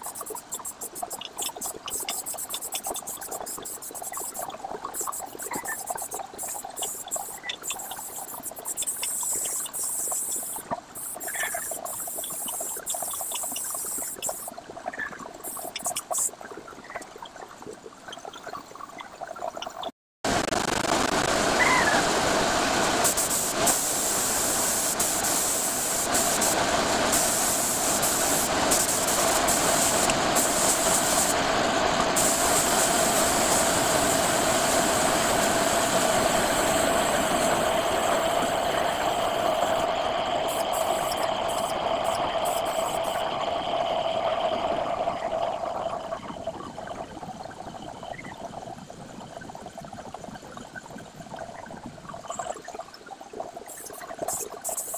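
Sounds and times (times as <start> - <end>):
airbrush hissing: 0.0 - 14.5, 23.0 - 31.4, 32.1 - 43.2.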